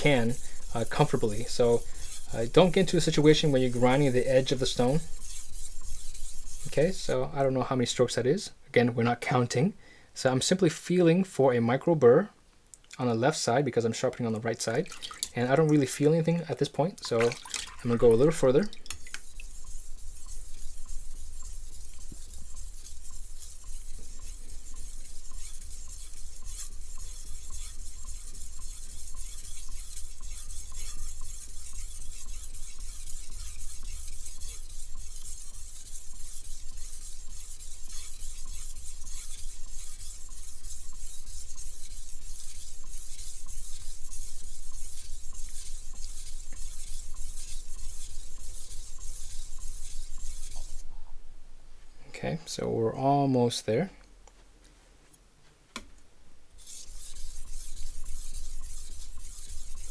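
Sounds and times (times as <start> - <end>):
knife scraping on whetstone: 0.0 - 7.4, 17.1 - 50.9, 56.6 - 59.9
low steady hum: 0.0 - 10.4, 12.0 - 59.9.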